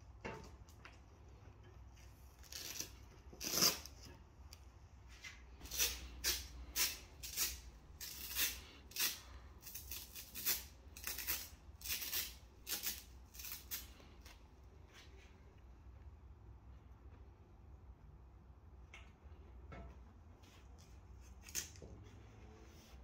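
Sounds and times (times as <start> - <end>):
velcro strap ripping: 5.7 - 14.0.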